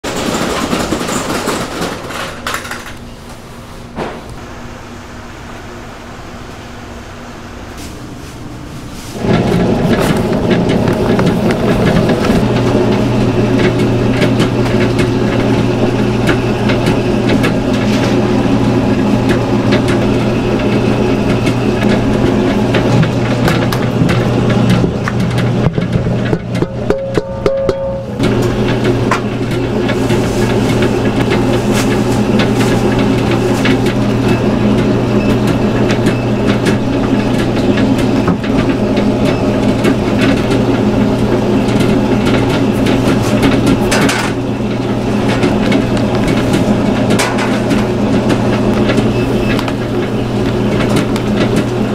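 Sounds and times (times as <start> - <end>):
machine clatter: 0.0 - 3.1, 9.2 - 51.9
kitchen machine motor running: 9.2 - 51.9.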